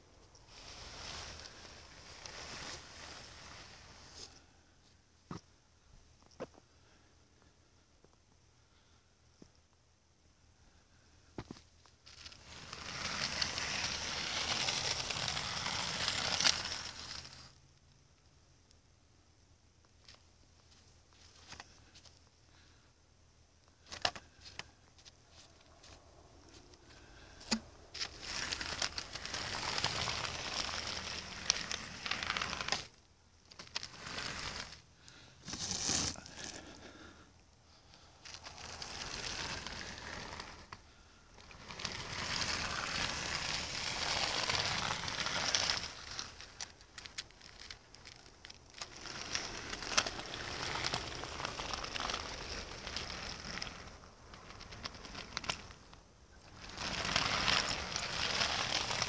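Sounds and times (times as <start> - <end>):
snow crunching under snowplow: 12.1 - 17.3, 56.5 - 59.0.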